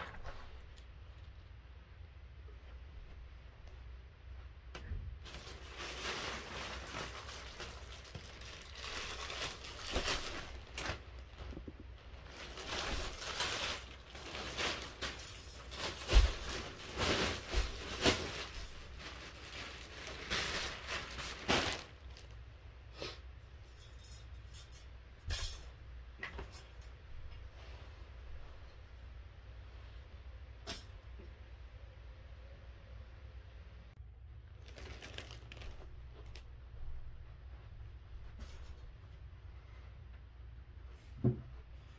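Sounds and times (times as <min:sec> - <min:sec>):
plastic wrapping crinkling and tearing: 0:05.2 - 0:22.4, 0:34.4 - 0:36.5.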